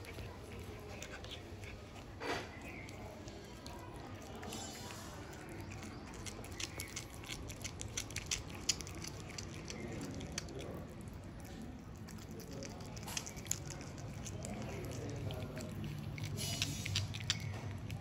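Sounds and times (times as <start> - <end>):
cat chewing wet clicks and smacks: 0.0 - 18.0.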